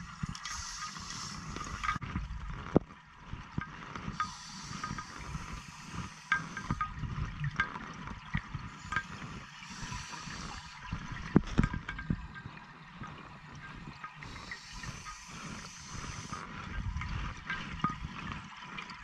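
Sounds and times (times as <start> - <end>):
regulator exhaust bubbles gurgling: 0.0 - 19.0
hissing inhalation: 0.4 - 2.0, 4.2 - 6.8, 9.1 - 10.8, 14.2 - 16.5.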